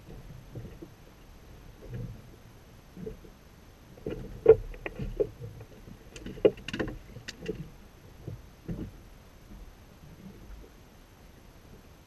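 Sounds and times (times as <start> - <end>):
fishing gear knocks and clicks: 6.2 - 7.7.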